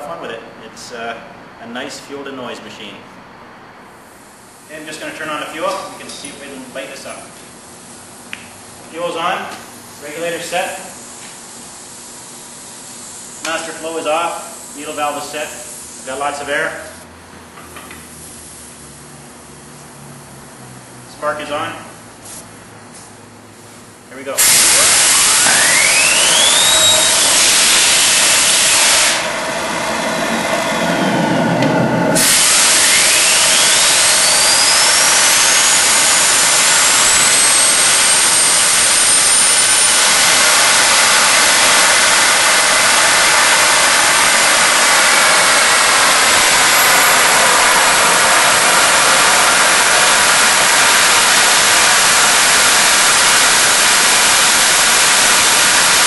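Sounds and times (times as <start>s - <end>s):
turbojet engine whine: 24.4s - 56.0s.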